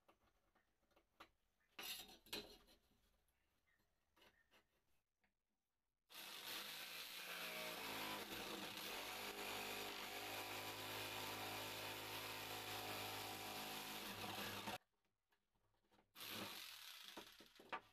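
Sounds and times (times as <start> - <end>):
jigsaw cutting wood: 6.1 - 14.8, 16.2 - 17.8.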